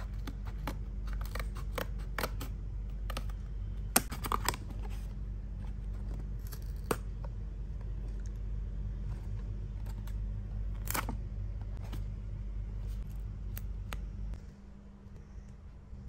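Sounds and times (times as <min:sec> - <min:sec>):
scissors snipping cardboard: 0:00.0 - 0:02.5
cardboard crackling and snapping: 0:00.0 - 0:05.0.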